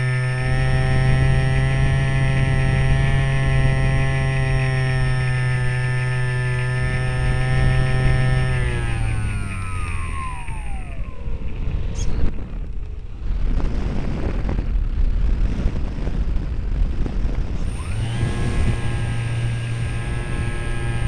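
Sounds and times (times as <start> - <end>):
model plane motor whine: 0.0 - 21.0
rough rushing noise: 0.0 - 21.0.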